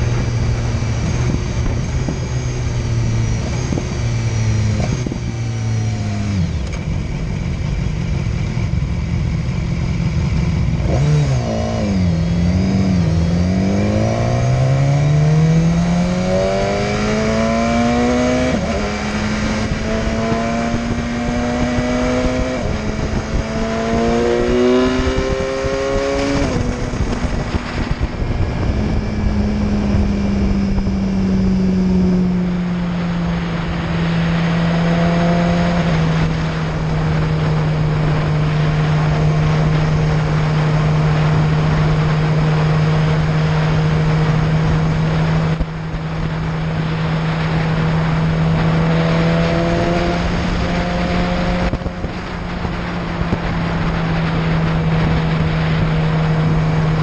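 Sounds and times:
motorcycle engine: 0:00.0 - 0:57.0
wind rushing over microphone: 0:00.0 - 0:57.0.

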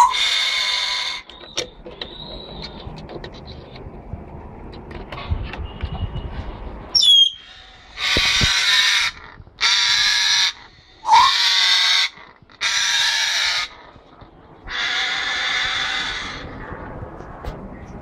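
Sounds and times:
parrot screeching: 0:00.0 - 0:01.3, 0:07.0 - 0:13.9, 0:14.7 - 0:16.4
parrot whistling: 0:07.0 - 0:07.5, 0:11.0 - 0:11.5.

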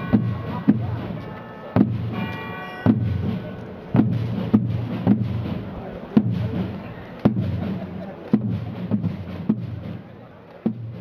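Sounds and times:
heavy drum strokes: 0:00.0 - 0:11.0
low rumble of drumming: 0:02.9 - 0:11.0.

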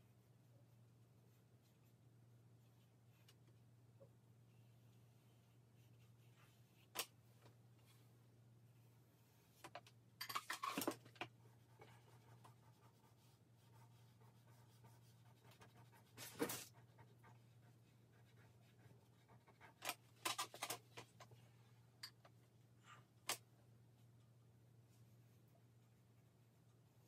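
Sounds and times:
faint low hum: 0:00.0 - 0:27.0
pencil scratching on paper: 0:11.3 - 0:20.2.

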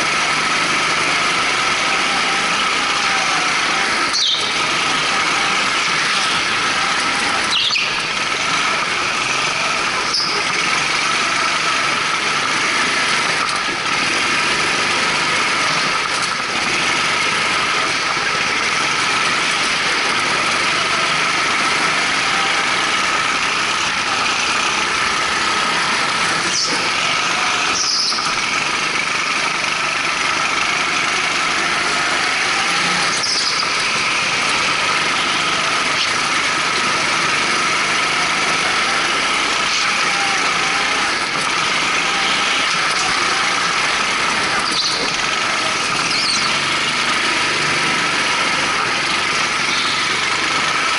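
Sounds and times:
go-kart engine running: 0:00.0 - 0:50.9
tyre squeals: 0:01.8 - 0:08.8, 0:09.4 - 0:11.9, 0:26.4 - 0:28.4, 0:31.6 - 0:34.1, 0:37.7 - 0:47.1.

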